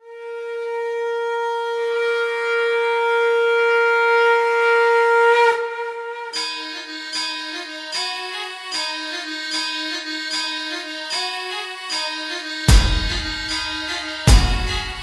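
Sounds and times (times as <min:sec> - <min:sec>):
wind instrument held note: 0:12.5 - 0:15.0
sharp drum strokes: 0:12.7 - 0:15.0.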